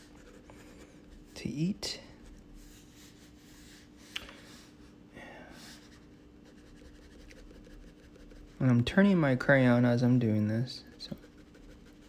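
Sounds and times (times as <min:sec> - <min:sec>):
crayon scratching on paper: 0:05.8 - 0:08.6, 0:10.8 - 0:12.0.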